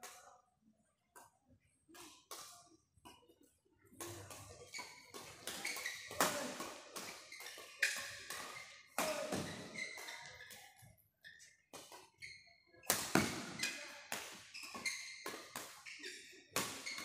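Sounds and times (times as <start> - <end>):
racquets hitting shuttlecock: 4.0 - 10.7, 12.8 - 17.0.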